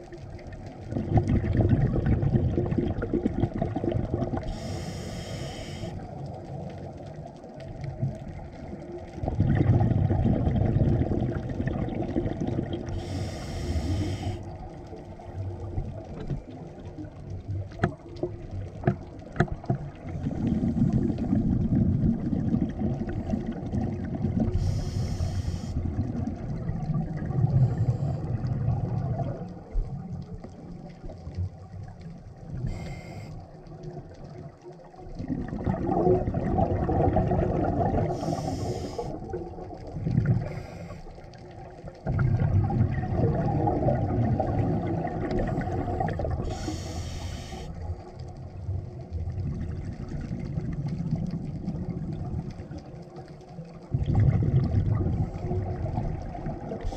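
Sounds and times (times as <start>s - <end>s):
exhaled air bubbling: 0.0s - 56.9s
regulator hissing inhalations: 4.5s - 6.0s, 12.9s - 14.5s, 24.6s - 25.8s, 32.7s - 33.4s, 38.1s - 39.2s, 40.4s - 41.1s, 45.6s - 47.8s.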